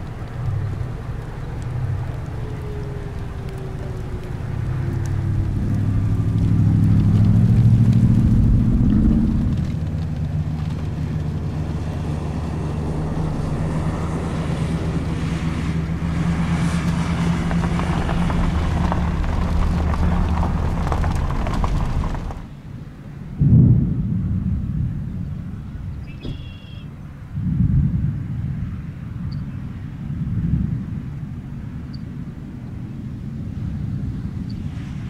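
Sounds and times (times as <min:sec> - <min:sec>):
vehicle engine running: 0:00.0 - 0:22.7.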